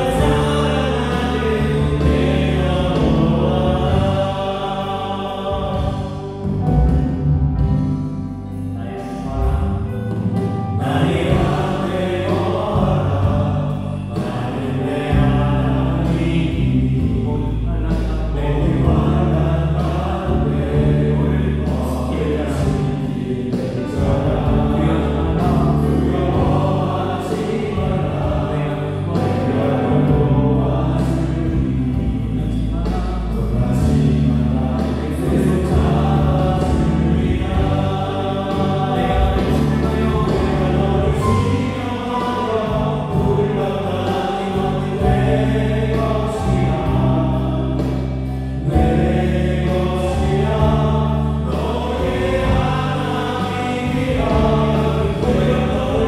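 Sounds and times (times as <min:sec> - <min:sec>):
live band playing gospel song: 0:00.0 - 0:56.0.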